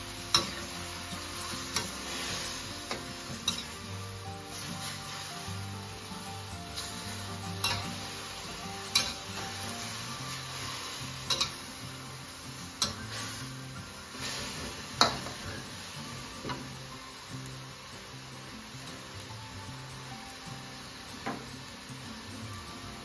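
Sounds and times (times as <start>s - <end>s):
metal spatula scraping wok: 0.0s - 5.5s, 6.5s - 15.8s
cabbage sizzling in a wok: 0.0s - 23.0s
soft background music: 0.0s - 23.0s.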